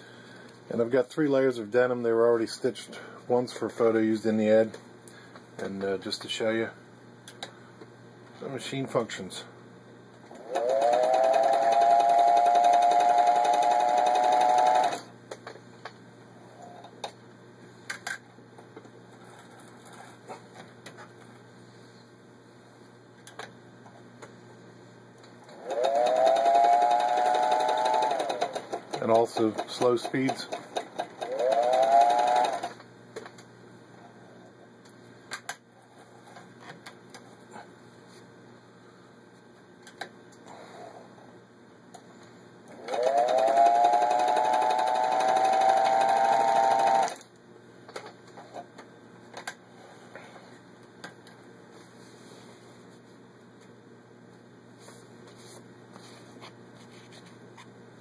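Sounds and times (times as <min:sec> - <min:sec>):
sewing machine motor whine: 0:10.3 - 0:15.1, 0:25.5 - 0:32.8, 0:42.7 - 0:47.2
sharp clicks and handling noises: 0:23.2 - 0:24.4, 0:39.8 - 0:40.4
rapid stitching ticks: 0:25.8 - 0:32.7.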